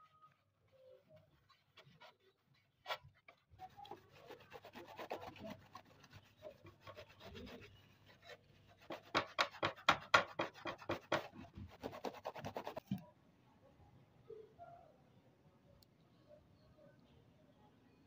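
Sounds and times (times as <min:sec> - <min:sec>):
brush scrubbing metal: 0:00.9 - 0:12.8.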